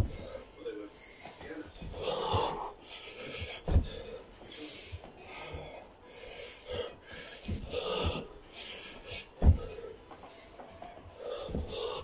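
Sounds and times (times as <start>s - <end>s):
man breathing hard and gasping: 0.0s - 12.0s
dull thuds on carpeted floor: 3.4s - 4.1s, 7.5s - 8.3s, 9.4s - 9.8s, 11.5s - 11.8s.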